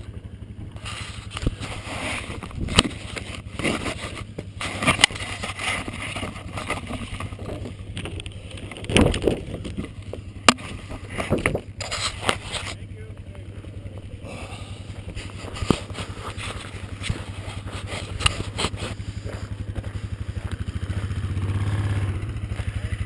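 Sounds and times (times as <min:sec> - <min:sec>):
low steady hum: 0:00.0 - 0:23.0
camera handling rustling: 0:15.0 - 0:19.6.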